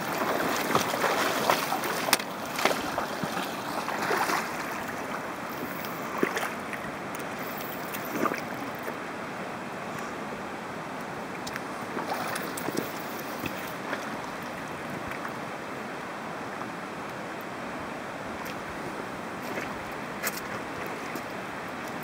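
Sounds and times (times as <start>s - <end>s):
water splashes: 0.0s - 9.1s, 11.3s - 15.4s, 18.3s - 22.0s
river water rushing: 0.0s - 22.0s.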